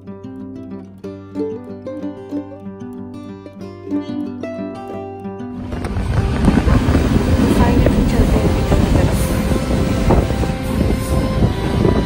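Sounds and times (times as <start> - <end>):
train wheels rumbling on track: 5.7 - 12.0.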